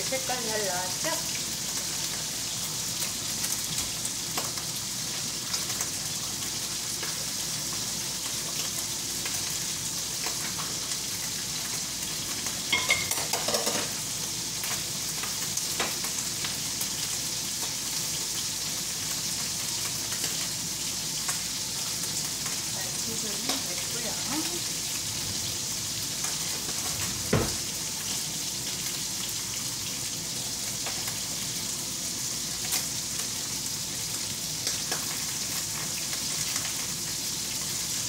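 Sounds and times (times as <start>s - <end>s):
food sizzling in oil: 0.0s - 38.0s
dishes and pot clattering: 12.7s - 14.0s.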